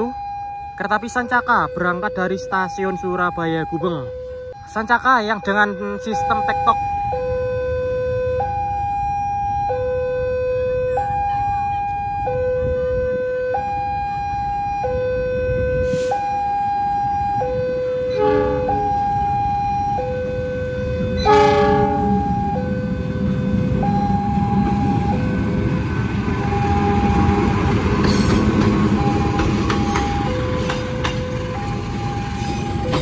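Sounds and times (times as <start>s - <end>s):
level crossing warning siren: 0.0s - 33.0s
approaching train rumble: 15.4s - 33.0s.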